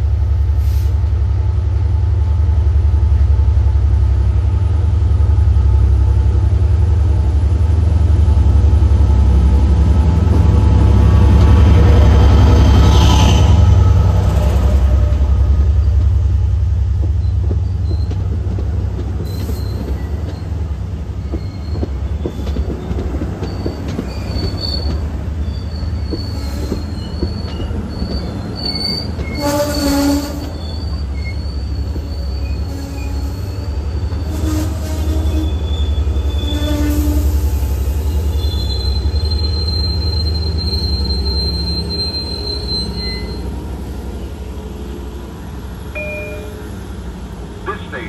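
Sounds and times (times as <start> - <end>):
train wheels rumbling on rails: 0.0 - 48.0
wheel squeals: 17.2 - 18.2, 21.2 - 37.2, 38.3 - 43.6.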